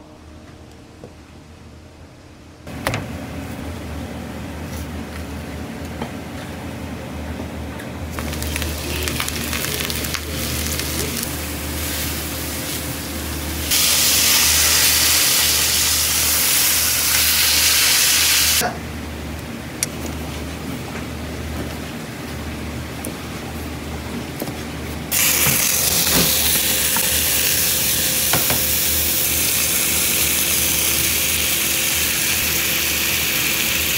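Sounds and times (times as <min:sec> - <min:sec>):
chicken sizzling in hot oil: 0:08.2 - 0:18.6, 0:25.1 - 0:33.9
loud hiss: 0:13.4 - 0:18.6.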